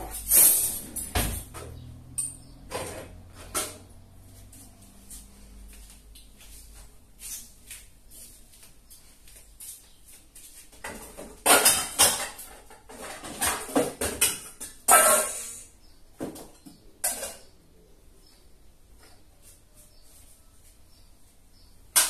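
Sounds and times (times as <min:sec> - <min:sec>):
pots and dishes clattering: 0:00.0 - 0:04.0, 0:10.8 - 0:17.6.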